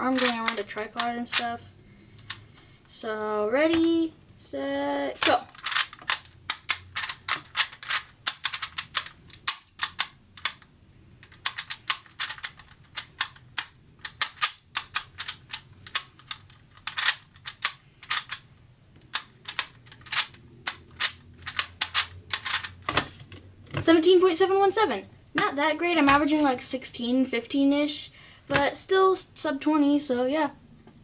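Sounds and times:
puzzle dials clicking: 5.2 - 22.9.

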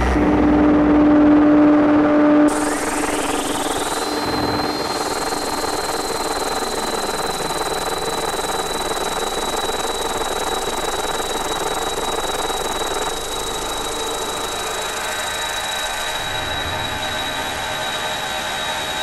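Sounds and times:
steady high tone: 0.0 - 19.0.

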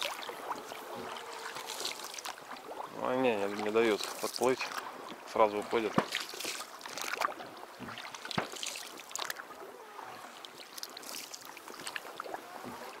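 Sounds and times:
oars rowing with splashing: 0.0 - 13.0
water trickling off oar blades: 0.0 - 13.0.

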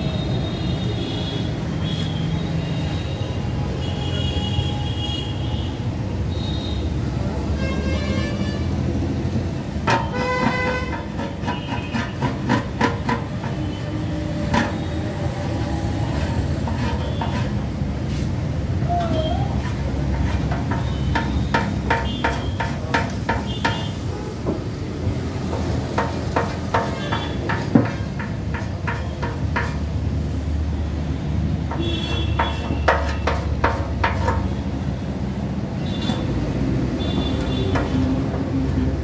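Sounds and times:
metal tool tapping on fuel tank: 20.5 - 23.9, 26.0 - 29.8.

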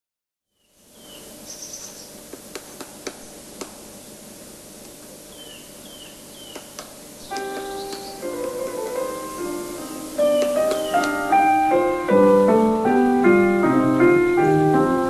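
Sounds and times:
faint outdoor background: 0.5 - 15.0
high bird chirp: 0.6 - 2.2, 5.3 - 8.3, 10.2 - 11.2
short falling bird calls: 1.0 - 2.2, 5.3 - 8.3, 10.1 - 11.2
woodpecker tapping: 5.4 - 8.8, 10.3 - 11.2.

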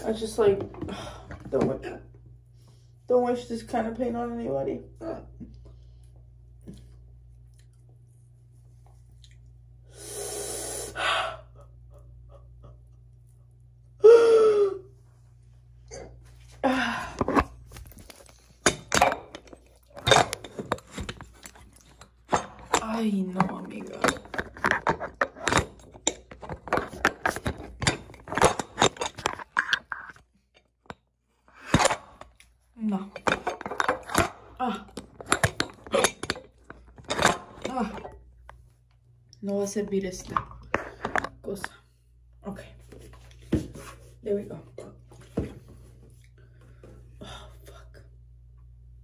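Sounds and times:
sharp hissing breath: 9.9 - 11.5
breathy exhale: 9.9 - 11.6.

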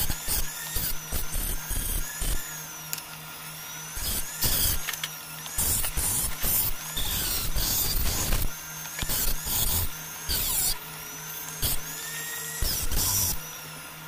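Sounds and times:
rotary tool humming: 0.0 - 14.0
bit grinding metal: 4.0 - 10.8, 11.4 - 13.4.

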